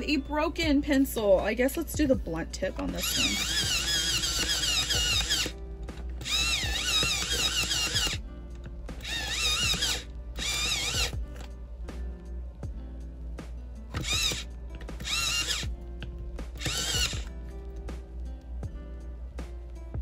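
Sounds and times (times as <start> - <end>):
electric pencil sharpener whirring: 3.0 - 5.5, 6.2 - 8.2, 9.0 - 11.5, 13.9 - 15.7, 16.6 - 17.3.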